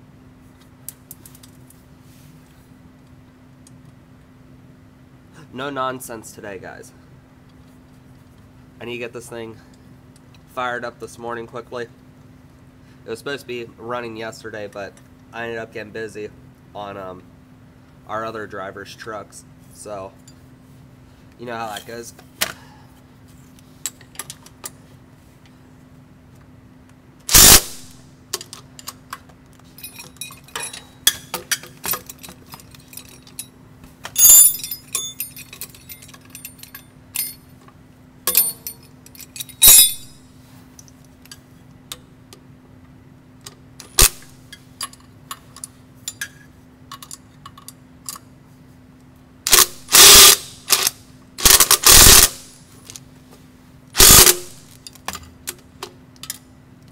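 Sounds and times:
wrench and ratchet clinking: 27.3 - 27.6, 29.8 - 37.5, 38.3 - 40.2, 49.5 - 52.4, 54.0 - 55.0
impact wrench bursts: 27.3 - 27.9, 39.6 - 40.2, 49.5 - 52.6, 54.0 - 54.7.

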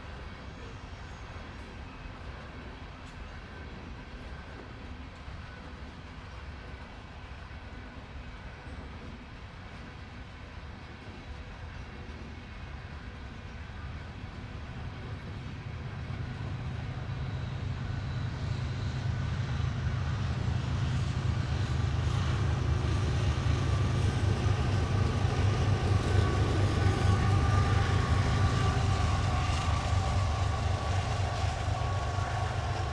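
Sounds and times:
locomotive engine drone: 0.0 - 32.9
freight cars rumbling: 16.1 - 32.9.

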